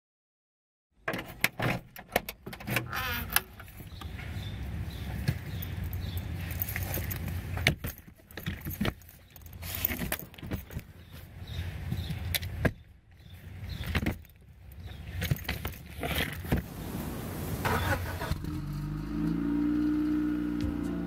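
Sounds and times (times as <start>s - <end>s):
buckles jingling: 3.5s - 12.6s, 13.5s - 16.6s.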